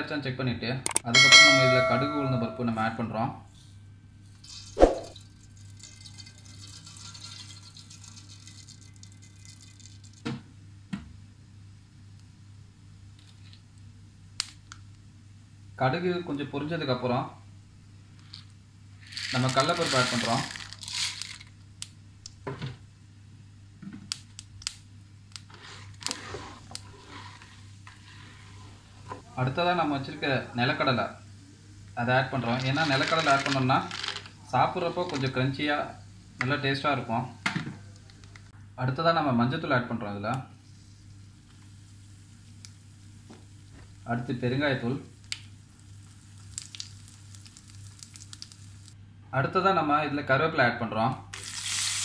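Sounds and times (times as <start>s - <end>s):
seeds sizzling in hot oil: 19.0s - 21.5s, 25.3s - 28.7s, 32.2s - 34.1s, 40.6s - 49.0s, 51.3s - 52.0s
seeds popping in hot oil: 24.1s - 25.5s, 41.4s - 43.6s, 45.1s - 49.0s.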